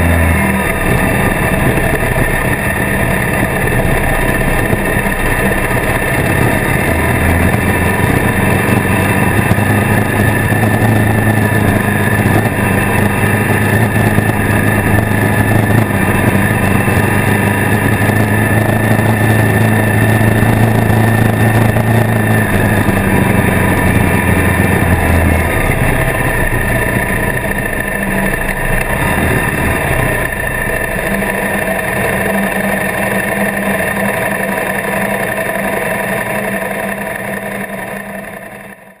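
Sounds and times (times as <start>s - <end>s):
motorcycle engine running: 0.0s - 39.0s
road noise: 0.0s - 39.0s
wind noise: 0.2s - 28.0s.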